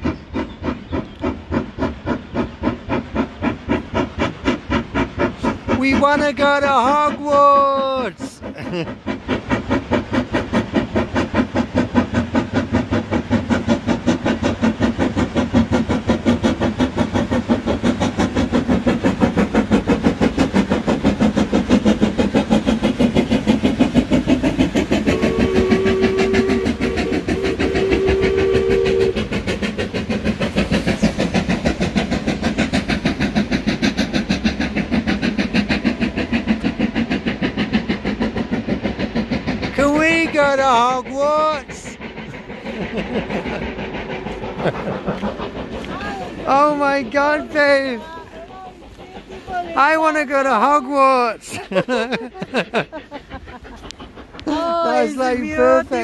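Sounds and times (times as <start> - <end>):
steam locomotive exhaust beating: 0.0 - 56.0
two-tone train whistle: 25.1 - 29.3.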